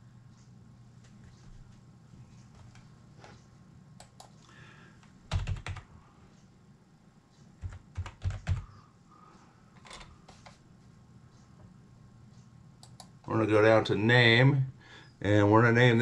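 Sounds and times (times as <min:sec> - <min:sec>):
computer keyboard typing: 0:05.3 - 0:05.9, 0:07.6 - 0:08.7.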